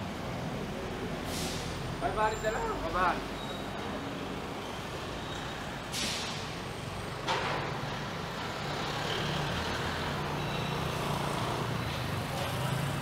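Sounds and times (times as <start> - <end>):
vehicle engines humming: 0.0 - 13.0
short hisses: 1.3 - 1.8.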